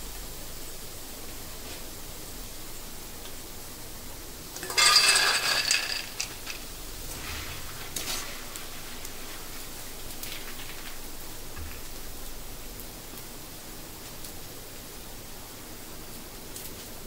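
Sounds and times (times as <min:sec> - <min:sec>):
hot oil frying hiss: 0:00.0 - 0:17.0
metal kitchen utensils clattering: 0:04.6 - 0:08.5.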